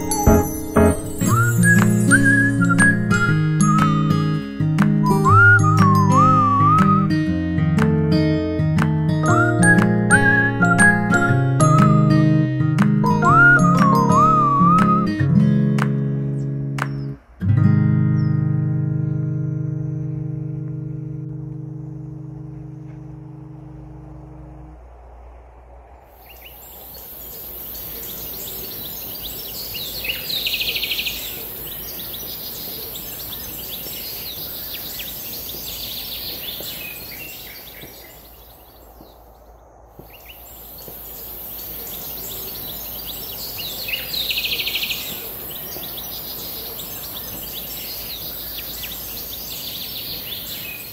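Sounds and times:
birds chirping: 0.0s - 7.1s, 25.9s - 50.9s.

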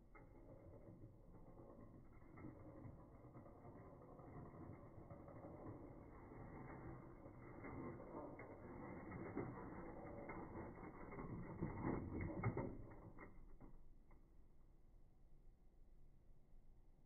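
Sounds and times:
toy truck motor whirring: 0.1s - 12.7s.

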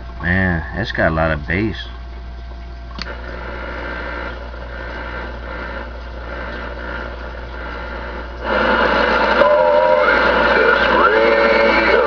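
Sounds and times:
low hum: 0.0s - 12.0s
radio click: 2.9s - 12.0s
radio static hiss: 3.0s - 12.0s.

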